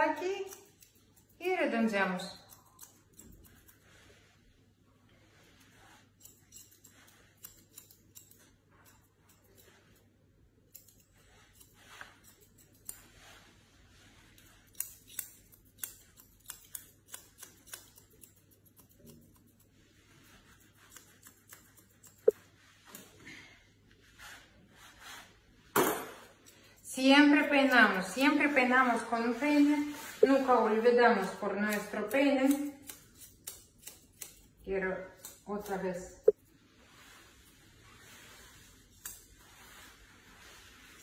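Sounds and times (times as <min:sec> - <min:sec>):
scissors snipping hair: 0:00.0 - 0:04.0, 0:05.6 - 0:13.4, 0:14.2 - 0:23.2, 0:25.9 - 0:36.5, 0:38.9 - 0:39.9.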